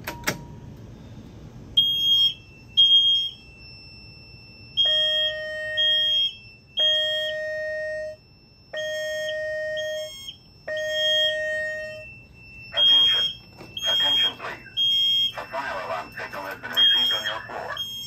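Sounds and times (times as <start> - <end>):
fire alarm tone blasts: 1.7 - 18.0
high beeps from alarm panel: 1.8 - 18.0.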